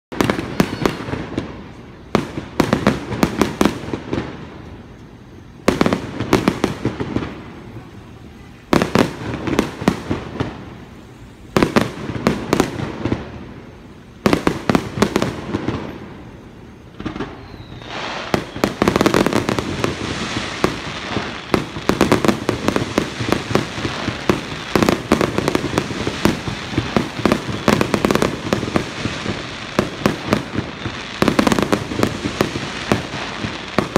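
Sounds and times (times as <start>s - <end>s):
fireworks bursting: 0.1s - 33.9s
fireworks crackling: 0.1s - 33.9s.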